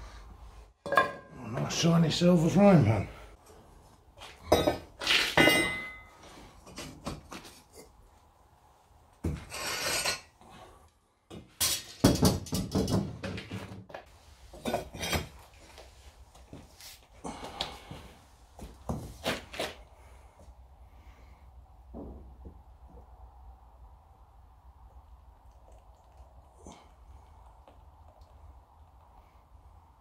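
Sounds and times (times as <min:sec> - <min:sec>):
metal scrape: 0:09.4 - 0:10.3.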